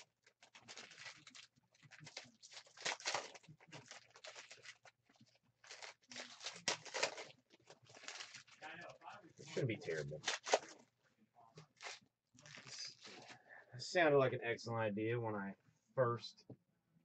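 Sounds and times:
foil wrappers crinkling and tearing: 0:00.0 - 0:10.8, 0:11.6 - 0:13.4.

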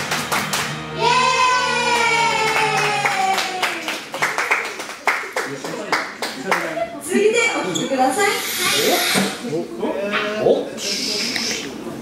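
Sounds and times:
audience clapping in time: 0:00.0 - 0:00.8, 0:01.9 - 0:06.7
backing track: 0:00.0 - 0:02.4.

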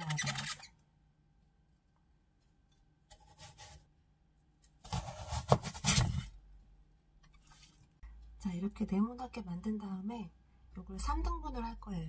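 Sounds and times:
knife cutting radish: 0:03.1 - 0:03.9, 0:04.6 - 0:06.3
scraping and knocks on cutting board: 0:04.8 - 0:06.3.

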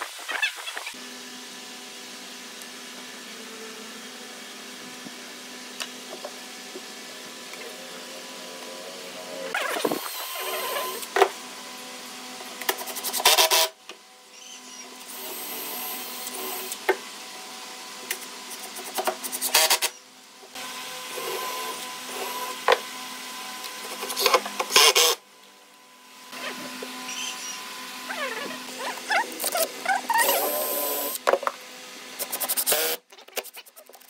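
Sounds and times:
cordless drill into wood: 0:13.2 - 0:13.7, 0:24.2 - 0:25.2, 0:30.0 - 0:31.2, 0:32.5 - 0:33.0.

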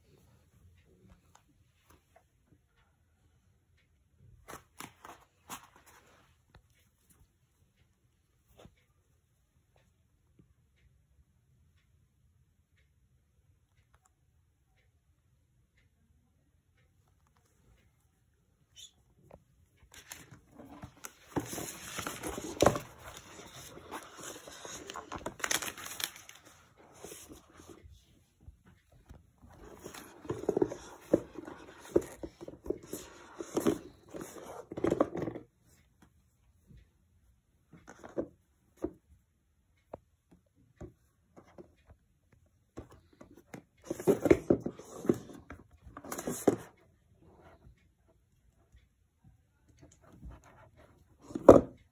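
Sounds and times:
rustling and scraping: 0:19.9 - 0:35.5, 0:42.8 - 0:46.8
packaging rustling and crinkling: 0:20.6 - 0:27.4.

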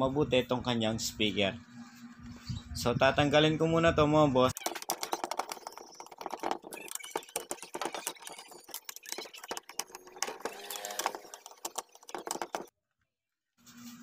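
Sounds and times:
screwdriver clicking and scraping: 0:04.6 - 0:12.7.

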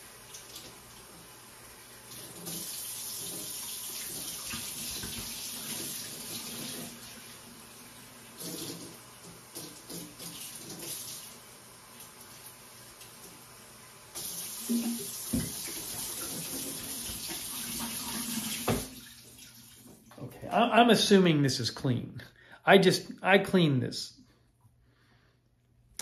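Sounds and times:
tap running into sink: 0:02.2 - 0:07.0, 0:14.2 - 0:19.0.

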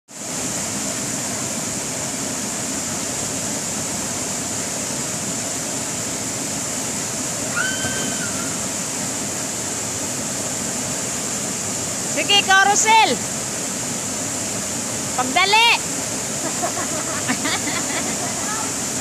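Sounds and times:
waterfall rushing: 0:02.2 - 0:19.0.

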